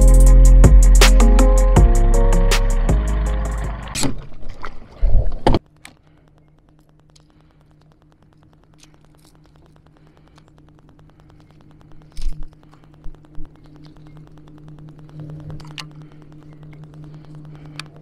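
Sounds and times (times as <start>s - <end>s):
intro music: 0.0s - 4.0s.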